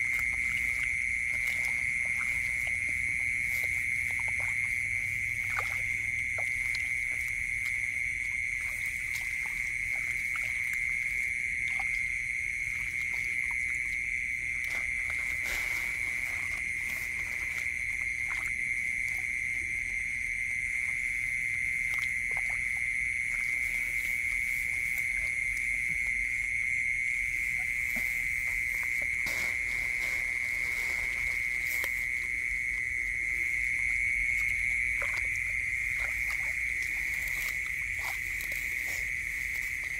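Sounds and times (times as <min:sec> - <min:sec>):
night chorus of calling animals: 0:00.0 - 0:39.9
hands splashing in muddy water: 0:27.1 - 0:39.9.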